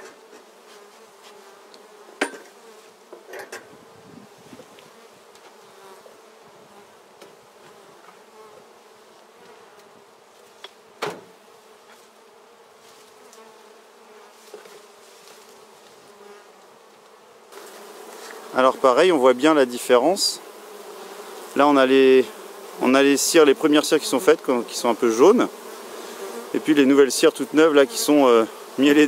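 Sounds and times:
bees buzzing: 0.1s - 29.0s
hive tool knocking wood: 11.0s - 11.3s.

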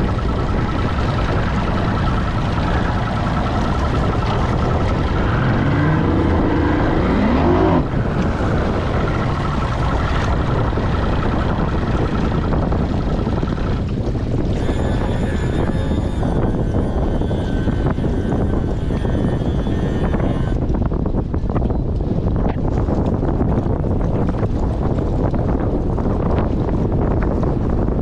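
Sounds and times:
rising whine: 0.0s - 20.9s
outboard motor idling: 0.0s - 28.0s
wind buffeting microphone: 0.0s - 28.0s.

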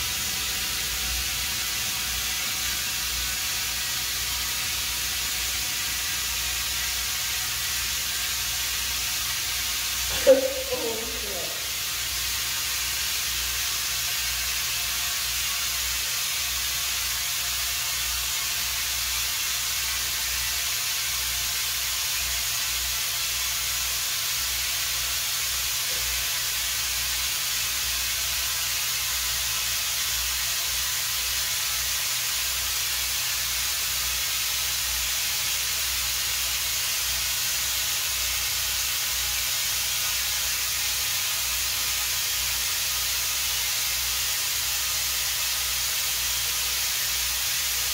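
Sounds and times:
compressed air hissing: 0.0s - 18.6s.

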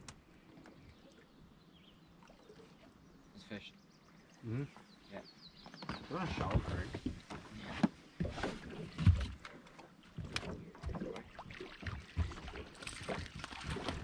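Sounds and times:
knocks and thumps in boat: 5.6s - 14.0s.

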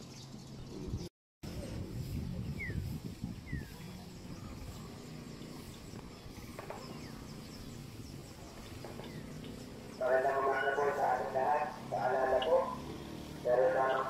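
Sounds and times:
steady low rumble: 1.4s - 13.7s.

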